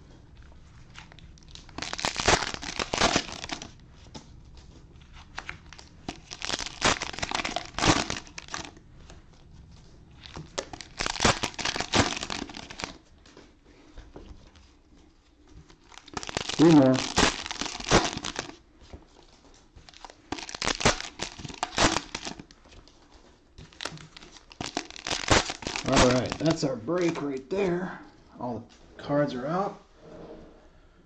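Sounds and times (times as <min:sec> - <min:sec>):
cellophane crinkling and tearing: 0:00.8 - 0:08.8, 0:09.8 - 0:13.1, 0:15.3 - 0:27.4.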